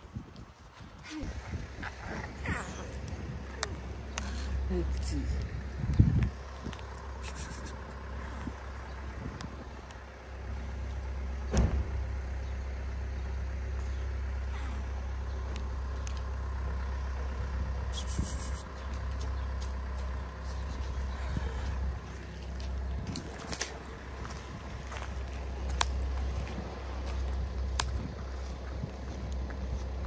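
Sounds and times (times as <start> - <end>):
vehicle engine rumbling: 0.0 - 30.0
sharp thump: 11.5 - 12.0.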